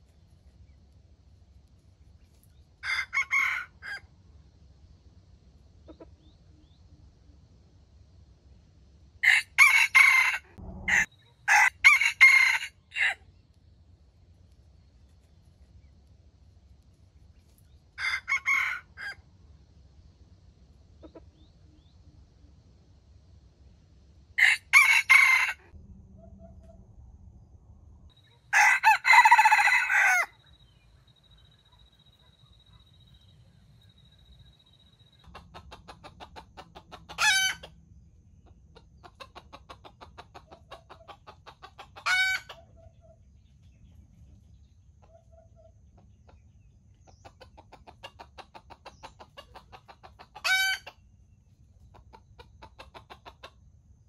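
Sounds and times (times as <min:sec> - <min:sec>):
rooster crowing: 0:02.8 - 0:04.1, 0:09.2 - 0:13.3, 0:18.0 - 0:19.2, 0:24.4 - 0:25.8, 0:28.5 - 0:30.8, 0:37.1 - 0:37.7, 0:42.0 - 0:42.5, 0:50.4 - 0:50.9
rapid clucking: 0:35.2 - 0:37.7, 0:38.4 - 0:42.7, 0:45.9 - 0:51.0, 0:51.8 - 0:53.6.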